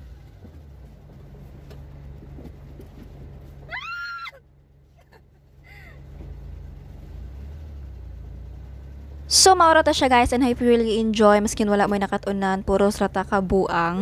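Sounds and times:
small engine idling: 0.0 - 11.7
woman squealing: 3.7 - 4.4, 5.7 - 6.0.

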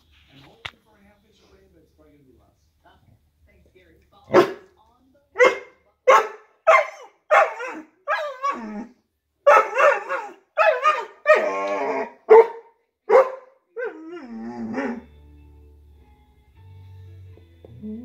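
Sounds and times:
large dog barking excitedly: 5.4 - 8.7, 9.4 - 13.5.

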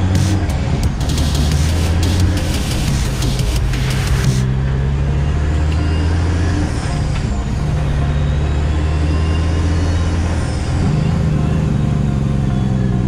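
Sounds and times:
truck diesel engine running: 0.0 - 13.0.

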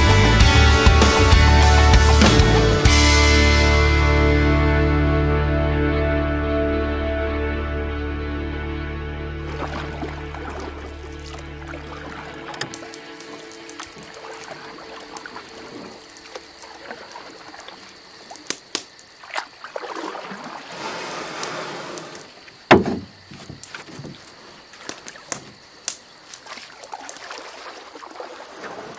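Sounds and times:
lake waves lapping: 9.3 - 28.9
sharp thump: 22.7 - 24.2.

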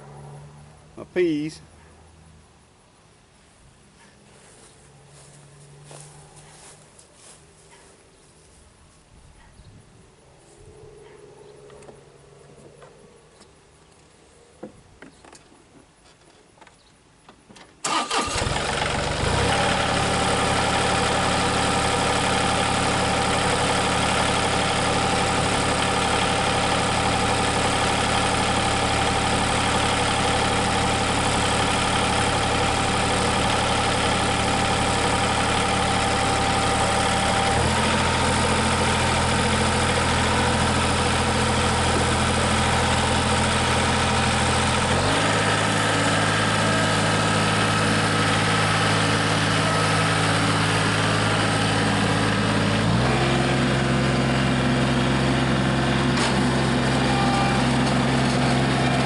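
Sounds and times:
engine starting and running: 17.6 - 59.0.

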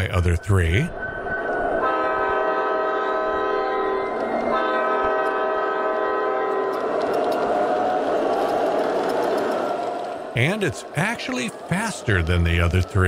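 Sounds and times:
model train horn blasts: 1.8 - 6.8
model train running noise: 1.9 - 13.0.

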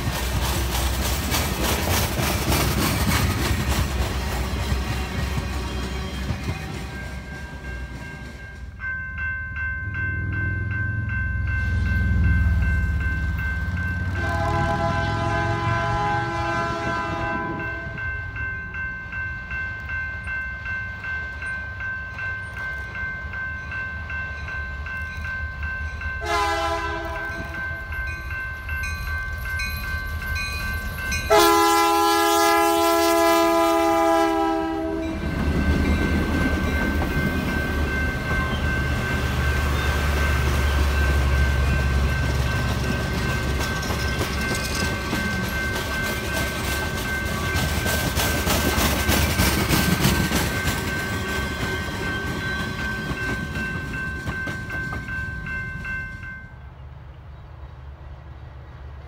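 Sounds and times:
train cars rumbling past: 0.0 - 59.0
locomotive air horn: 14.2 - 18.0, 26.2 - 27.5, 31.3 - 35.2.

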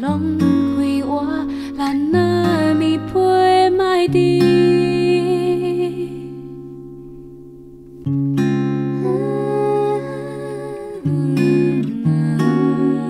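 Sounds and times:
acoustic guitar chords: 0.0 - 13.0.

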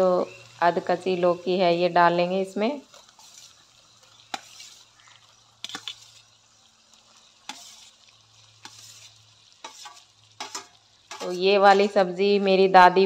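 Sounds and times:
gravy sizzling faintly: 0.0 - 13.0
spoon clinking and scraping on plate: 4.3 - 4.8, 5.6 - 6.2, 7.5 - 7.9, 8.6 - 11.9.

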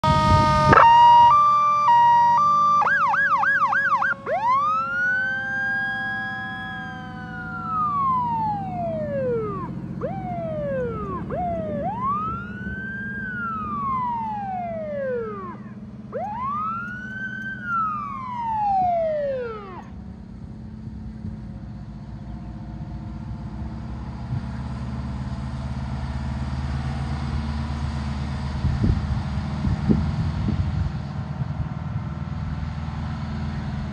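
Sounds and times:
fire truck siren: 0.0 - 20.5
truck engine rumble: 0.0 - 33.9.

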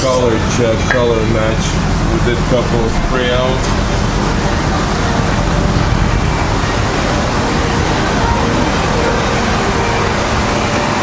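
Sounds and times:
loud rushing workshop noise: 0.0 - 11.0.

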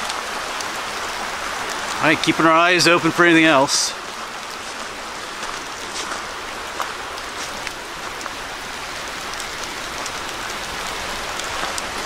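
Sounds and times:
creek flowing over rocks: 0.0 - 12.0
footsteps crunching on snow: 4.2 - 8.4.

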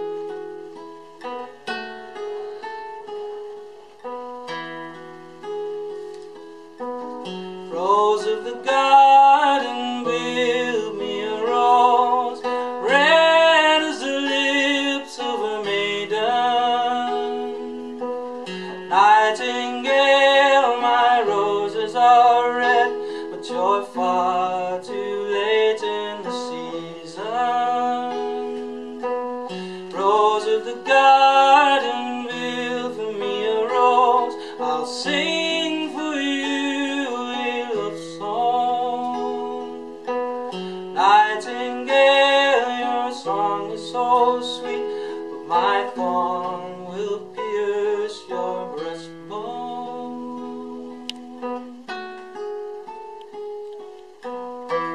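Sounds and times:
classical guitar plucking: 0.0 - 54.9
man singing: 7.6 - 52.0.

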